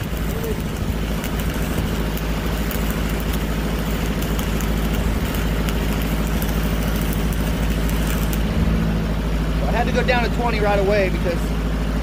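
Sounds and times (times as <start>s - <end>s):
welding arc crackling: 0.0s - 11.9s
diesel welder engine running: 0.0s - 12.0s.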